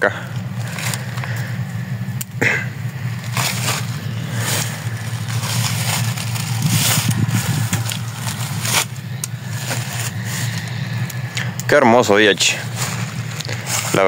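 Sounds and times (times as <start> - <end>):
tractor diesel engine idling: 0.0 - 14.0
footsteps through dry stubble: 3.0 - 11.4, 12.0 - 14.0.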